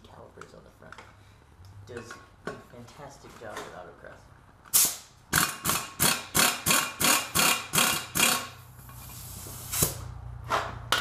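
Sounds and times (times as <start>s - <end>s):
impact wrench hammering: 4.8s - 8.6s.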